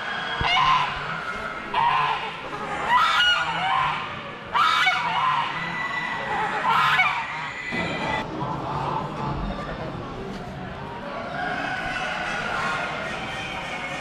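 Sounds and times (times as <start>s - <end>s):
geese honking: 0.0s - 8.2s.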